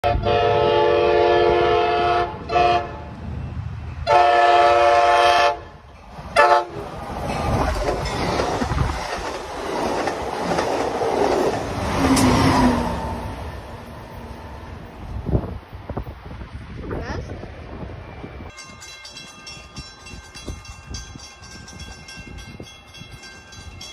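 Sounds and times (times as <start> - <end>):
train horn: 0.0 - 3.1, 4.0 - 5.8, 6.4 - 6.8
train rumbling and clacking on rails: 0.0 - 23.9.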